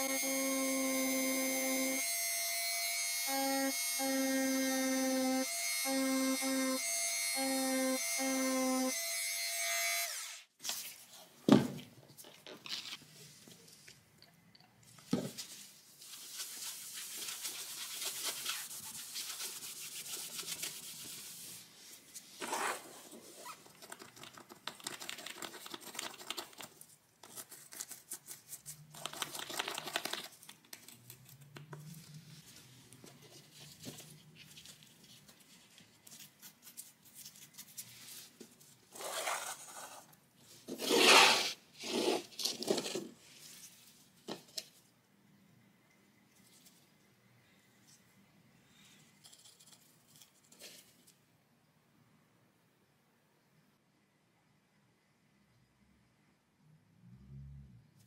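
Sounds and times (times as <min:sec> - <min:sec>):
small handling noises: 0:10.6 - 0:19.5, 0:20.2 - 0:40.9, 0:42.2 - 0:45.2, 0:45.9 - 0:51.4.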